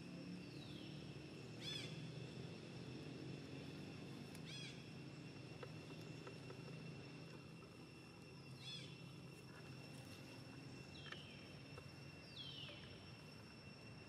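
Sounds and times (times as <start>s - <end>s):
high insect drone: 0.0s - 14.0s.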